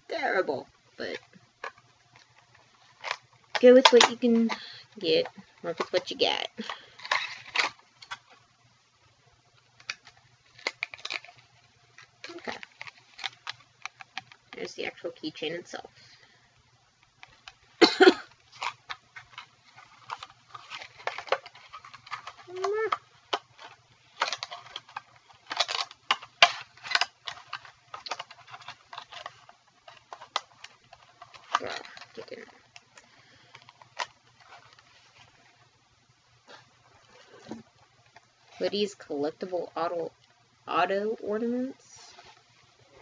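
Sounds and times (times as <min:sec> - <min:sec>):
packaging rustle: 0:01.0 - 0:08.5, 0:09.5 - 0:15.1, 0:17.0 - 0:35.7
small clicks and crinkles: 0:01.0 - 0:08.7, 0:09.4 - 0:40.4.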